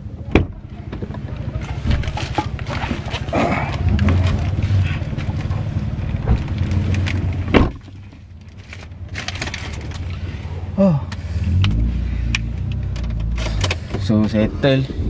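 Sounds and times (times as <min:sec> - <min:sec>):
low engine hum: 0:00.0 - 0:15.0
plastic bag rustling: 0:01.8 - 0:10.4
car door shutting: 0:07.4 - 0:07.8.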